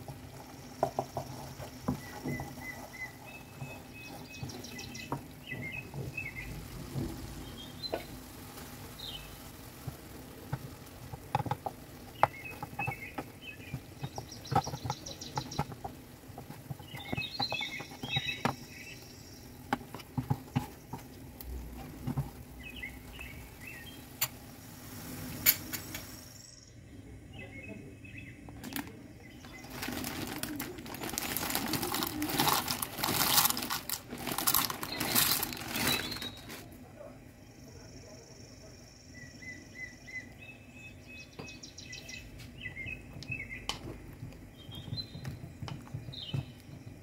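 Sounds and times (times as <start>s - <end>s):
wooden spoon scraping a pan: 0.0s - 23.4s, 29.5s - 36.7s
pasta poured into boiling water: 0.0s - 25.5s, 29.5s - 36.7s
boiling water bubbling hiss: 0.0s - 47.0s.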